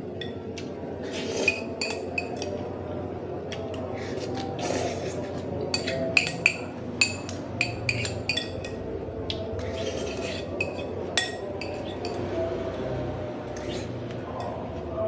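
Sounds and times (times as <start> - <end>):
cutlery clinking on ceramic bowl: 1.4 - 2.6, 5.7 - 8.8, 9.6 - 12.2.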